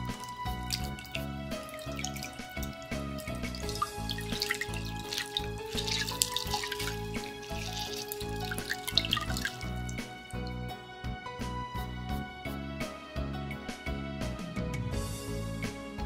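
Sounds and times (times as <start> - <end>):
water dripping into a bowl: 0.0 - 10.7
background music: 0.0 - 16.0.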